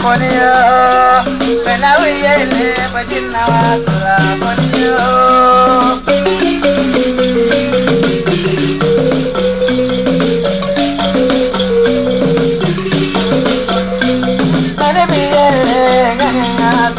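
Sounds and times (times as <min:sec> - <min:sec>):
person singing: 0:00.0 - 0:06.5, 0:14.7 - 0:16.9
wooden xylophone melody: 0:00.0 - 0:16.9
shaken rattle: 0:01.2 - 0:16.9.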